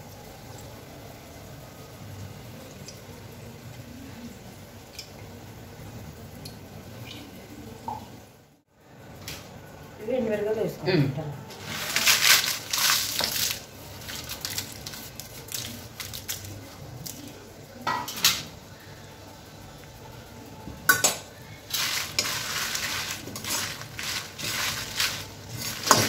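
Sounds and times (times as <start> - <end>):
chillies clattering into pan: 11.5 - 17.2, 20.9 - 26.0
oil sizzling: 11.5 - 18.7, 20.9 - 26.0
steel ladle scraping pan: 21.7 - 26.0.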